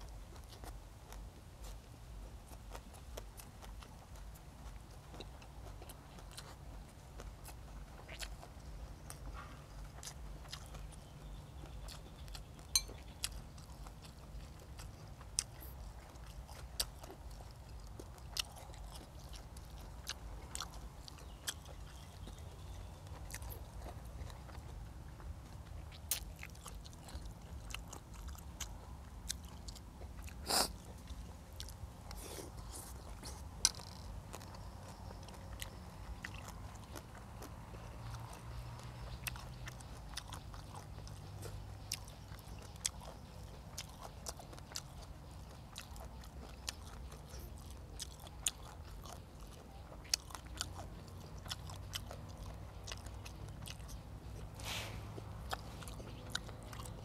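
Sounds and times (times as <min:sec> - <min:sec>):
person chewing food: 0:00.0 - 0:57.0
sharp crunches of biting food: 0:02.5 - 0:24.8, 0:25.9 - 0:57.0.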